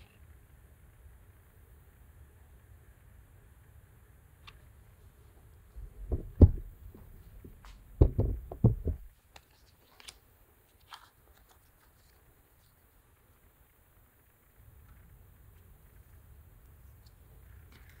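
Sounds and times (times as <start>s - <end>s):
handling thumps and knocks: 5.8s - 9.1s.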